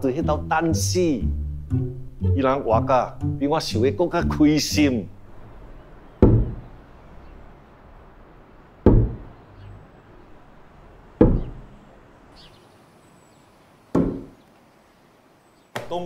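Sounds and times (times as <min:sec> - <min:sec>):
dull thuds: 0:06.2 - 0:06.8, 0:08.8 - 0:09.4, 0:11.2 - 0:11.7, 0:13.9 - 0:14.4.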